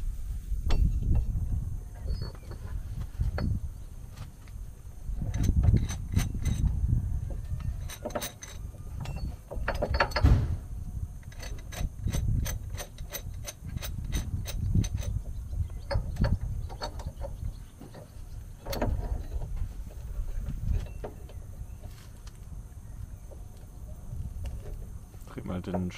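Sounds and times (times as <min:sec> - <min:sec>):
metal clicks and clatter: 0:05.2 - 0:06.7, 0:07.8 - 0:10.4, 0:11.2 - 0:15.2, 0:15.8 - 0:20.0
louder metal knocks: 0:09.5 - 0:10.6.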